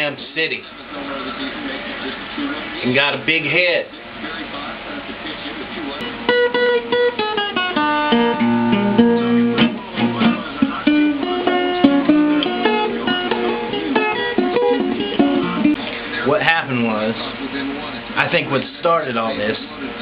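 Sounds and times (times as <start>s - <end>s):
acoustic guitar playing: 6.0s - 19.5s.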